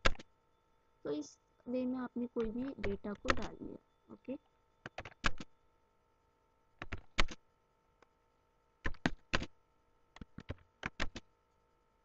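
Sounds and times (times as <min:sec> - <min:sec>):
keyboard typing: 0:00.0 - 0:00.3, 0:02.3 - 0:03.7, 0:04.8 - 0:05.5, 0:06.8 - 0:07.4, 0:08.8 - 0:09.5, 0:10.1 - 0:11.3.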